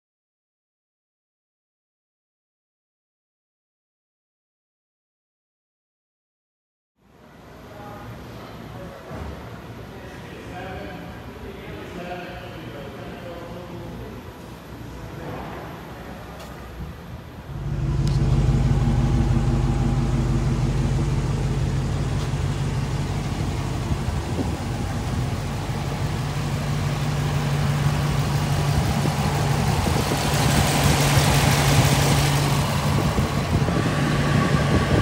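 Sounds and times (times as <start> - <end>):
car engine idling: 17.4 - 35.0.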